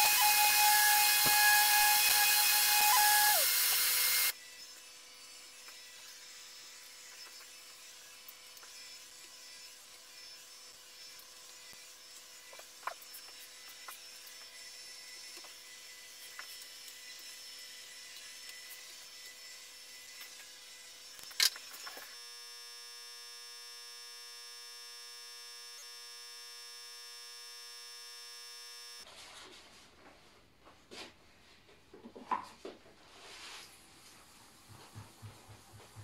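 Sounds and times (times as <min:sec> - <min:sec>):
workshop hum: 0:00.0 - 0:29.1, 0:32.6 - 0:36.0
hand sanding rubbing strokes: 0:33.1 - 0:35.9.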